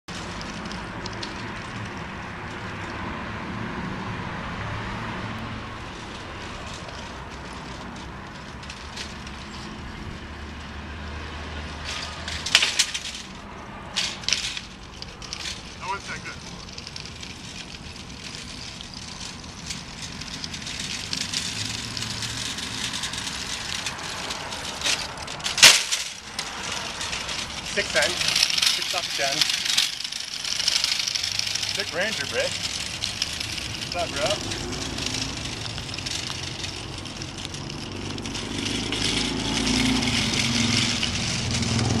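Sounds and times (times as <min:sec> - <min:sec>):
shopping cart rolling on asphalt: 0:00.1 - 0:42.0
cart landing metal bang: 0:25.4 - 0:26.2.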